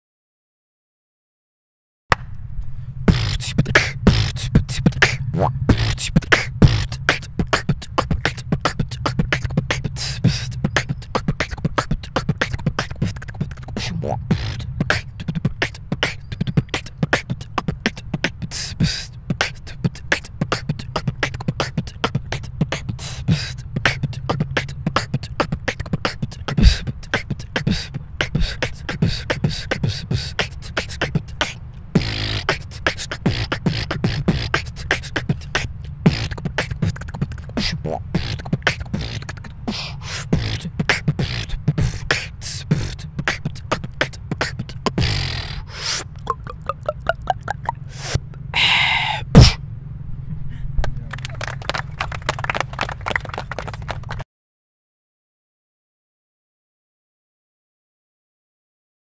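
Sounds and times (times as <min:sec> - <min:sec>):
person beatboxing: 0:03.1 - 0:49.6.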